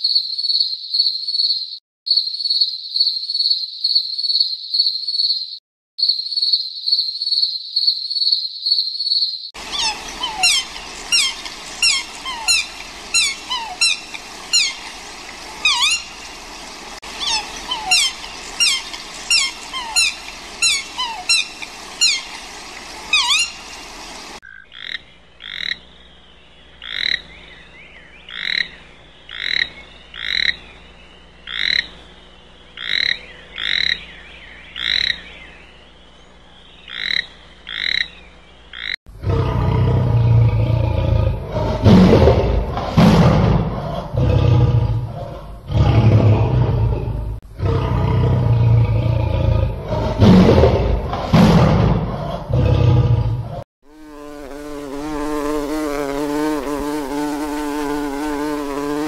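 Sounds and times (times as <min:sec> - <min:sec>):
short paired animal calls: 0:09.6 - 0:16.4, 0:17.0 - 0:25.8
deep rough animal call: 0:39.1 - 0:53.6.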